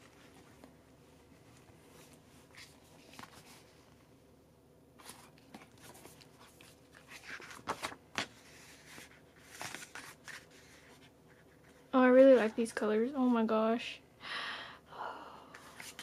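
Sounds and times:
paper rustling: 1.3 - 3.8, 5.0 - 12.6, 15.6 - 16.0.

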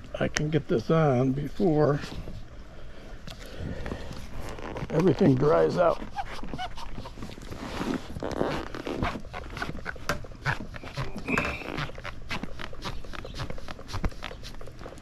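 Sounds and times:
wet squelches: 2.0 - 15.0
rubber grip squeaking: 4.2 - 15.0.

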